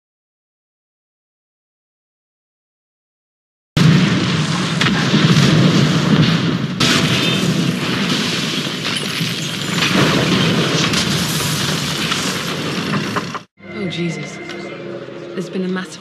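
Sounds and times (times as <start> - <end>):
large explosions rumbling: 3.8 - 13.5.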